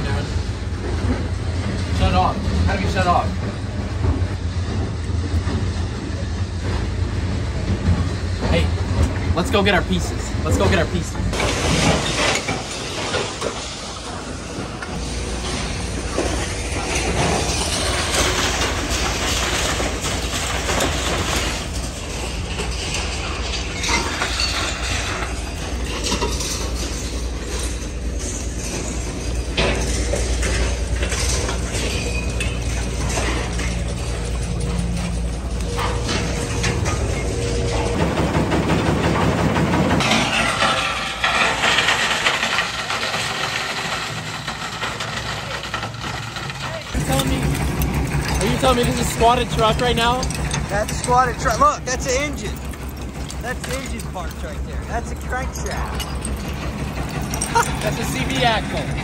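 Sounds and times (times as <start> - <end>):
engine running: 0.0 - 59.0
machinery low hum: 0.0 - 59.0
metallic clatter and knocking: 7.6 - 59.0
scrap metal pouring off conveyor: 11.4 - 14.0, 15.3 - 34.3, 40.0 - 52.6.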